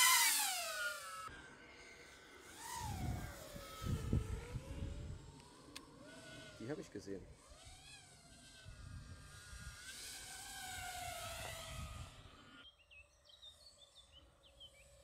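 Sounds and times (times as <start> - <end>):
drone motors whining: 0.0 - 15.0
birds chirping: 12.0 - 15.0.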